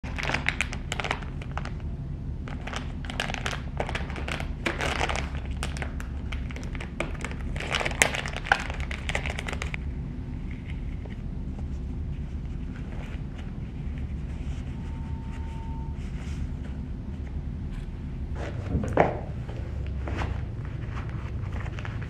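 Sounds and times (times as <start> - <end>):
plastic packaging crinkling: 0.0 - 10.9
steady low hum: 0.0 - 22.0.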